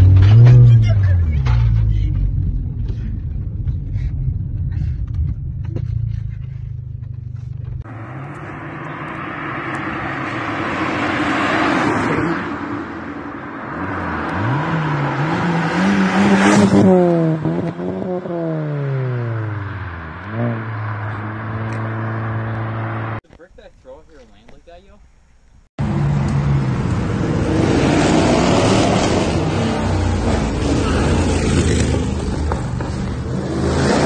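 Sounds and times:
gear changes: 0.0s - 11.2s
low in-cabin car drone: 0.0s - 11.2s
car exhaust accelerating: 0.0s - 23.2s
car passing close by: 7.9s - 23.2s.

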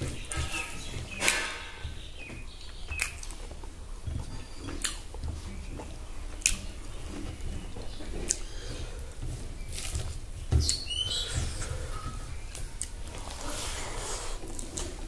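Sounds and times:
person chewing food: 0.0s - 15.0s
wet mouth smacks: 3.0s - 3.4s, 4.8s - 5.0s.

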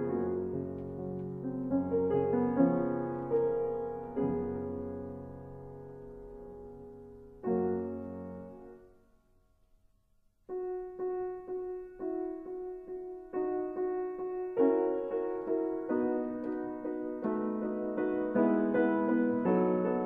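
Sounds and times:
slow solo piano: 0.0s - 9.6s, 10.2s - 20.0s.

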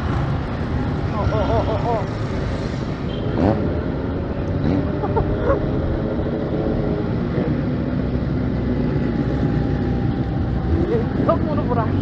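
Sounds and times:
motorcycle engines droning: 0.0s - 12.0s.

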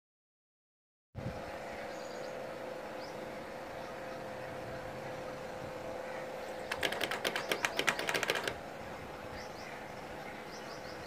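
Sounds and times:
faint steady hum: 1.2s - 11.0s
rapid sharp mechanical clicks: 6.6s - 8.6s.

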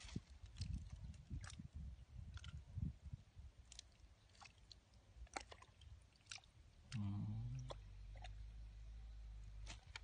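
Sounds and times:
hand squelching in wet mud: 0.0s - 2.7s, 3.6s - 8.5s.

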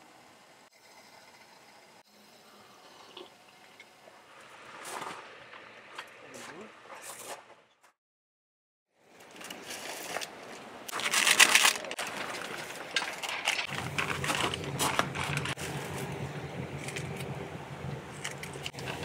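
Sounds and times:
steady low hum: 11.9s - 19.0s.

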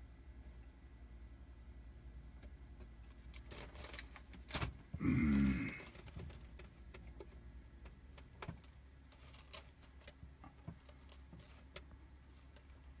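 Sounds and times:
truck engine rumble inside cab: 0.0s - 13.0s
clicks and rattles in cab: 5.8s - 13.0s.

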